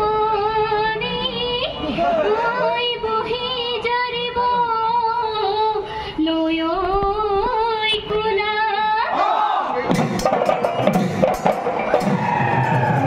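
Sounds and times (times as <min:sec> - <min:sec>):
woman singing: 0:00.0 - 0:09.1.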